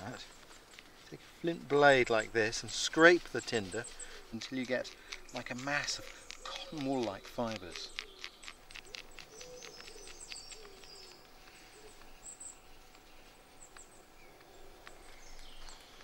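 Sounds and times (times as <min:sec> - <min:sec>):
blade scraping tinder: 0:00.0 - 0:11.0.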